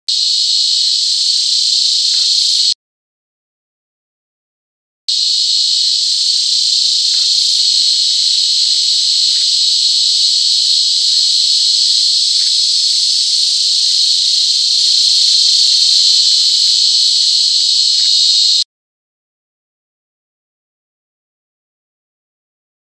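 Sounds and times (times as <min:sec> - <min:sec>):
cicada buzzing drone: 0:00.1 - 0:02.8, 0:05.1 - 0:18.6.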